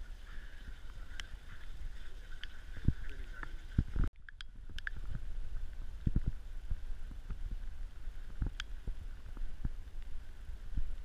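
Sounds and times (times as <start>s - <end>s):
low wind rumble: 0.0s - 11.0s
microphone handling noise: 2.4s - 11.0s.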